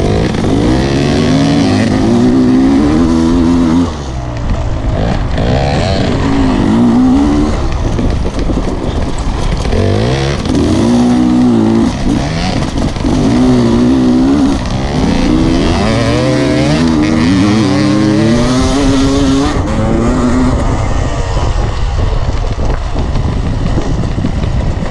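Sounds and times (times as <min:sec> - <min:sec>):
dirt bike engine revving: 0:00.0 - 0:24.9
wind noise on microphone: 0:00.0 - 0:24.9.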